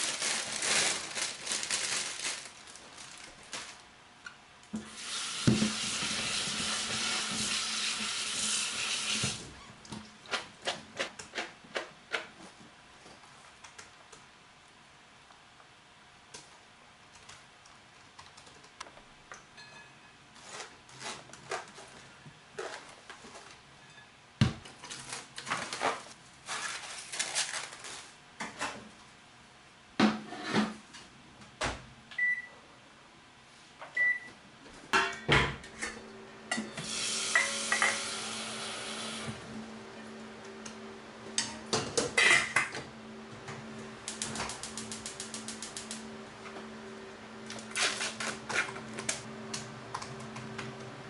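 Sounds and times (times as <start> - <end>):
microwave keypad beeps: 32.2 - 32.5, 34.0 - 34.4
microwave humming: 33.8 - 51.0
utensils and dishes clattering: 35.0 - 38.2, 41.4 - 42.7.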